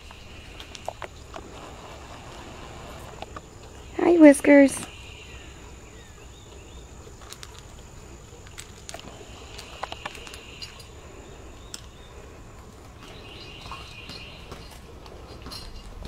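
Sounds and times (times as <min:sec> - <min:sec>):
crickets chirring: 0:00.0 - 0:16.0
cat eating from metal bowl: 0:07.0 - 0:12.1.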